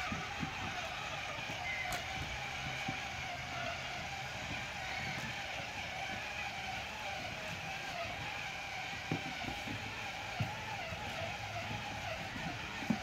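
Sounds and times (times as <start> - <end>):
motor whining: 0.0 - 13.0.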